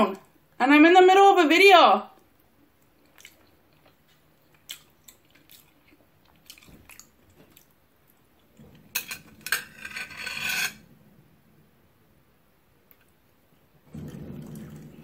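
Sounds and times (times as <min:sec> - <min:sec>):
chewing with mouth clicks: 0:02.3 - 0:08.5
cutlery scraping a dish: 0:08.8 - 0:10.9.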